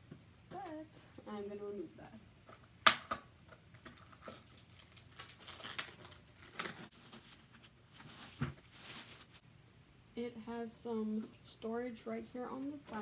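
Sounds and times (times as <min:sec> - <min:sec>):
plastic shrink wrap crinkling: 0:03.5 - 0:09.4.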